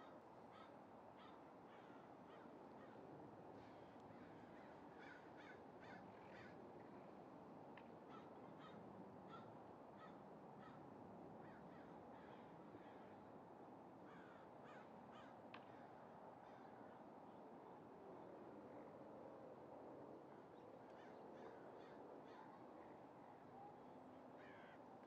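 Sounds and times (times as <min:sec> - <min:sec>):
crows cawing: 0:00.5 - 0:03.0, 0:04.5 - 0:06.6, 0:08.1 - 0:10.8, 0:14.1 - 0:15.4, 0:24.4 - 0:24.8.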